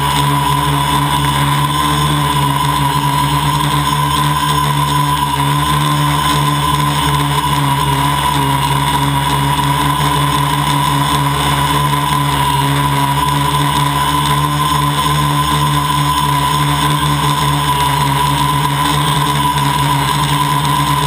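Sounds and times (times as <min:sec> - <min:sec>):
drone propellers whining: 0:00.0 - 0:21.0.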